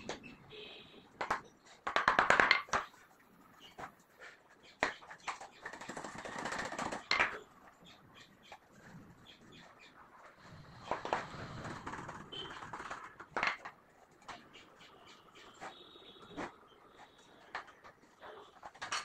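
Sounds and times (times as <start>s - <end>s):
wooden box clattering: 12.6s - 13.8s, 17.5s - 19.0s.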